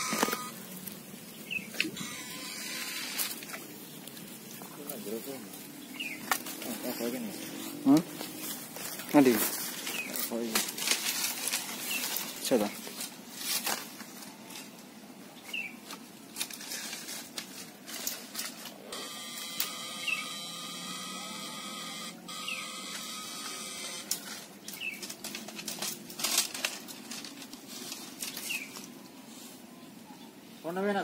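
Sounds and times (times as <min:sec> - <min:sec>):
electrical whine: 0:00.0 - 0:01.0, 0:01.7 - 0:03.6, 0:18.8 - 0:24.4
twigs and brush crackling: 0:00.0 - 0:19.6, 0:22.8 - 0:29.1
bird chirps: 0:05.8 - 0:06.3, 0:19.9 - 0:20.4, 0:22.3 - 0:22.8.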